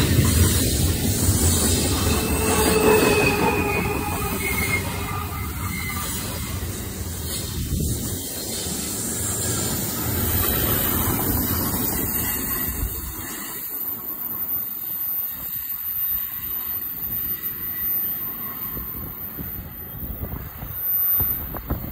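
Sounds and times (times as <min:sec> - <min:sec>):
freight train wheels clattering: 0:00.0 - 0:13.7.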